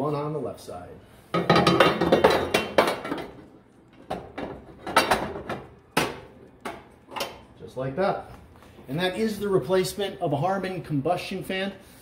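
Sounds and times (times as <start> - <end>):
metal baffles clattering in stove: 1.3 - 3.4, 4.1 - 7.4.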